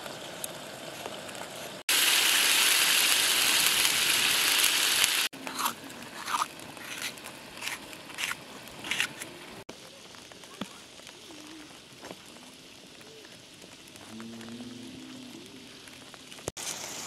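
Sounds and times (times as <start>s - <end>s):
vegetables sizzling in a pot: 0.0s - 17.0s
knife slicing crisp peppers: 5.4s - 9.4s.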